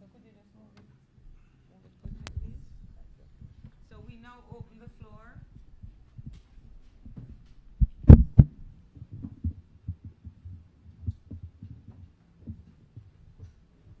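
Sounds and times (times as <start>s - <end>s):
microphone handling thumps: 2.0s - 14.0s.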